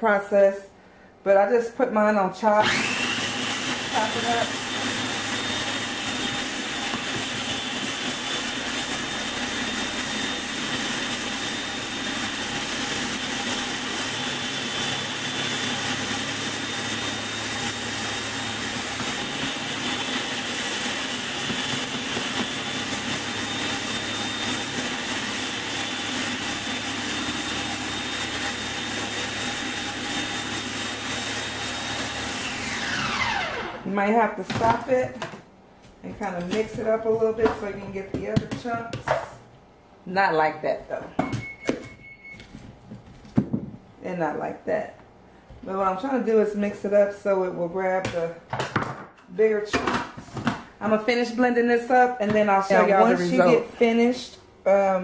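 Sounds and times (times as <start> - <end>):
food processor chopping: 2.6 - 33.9.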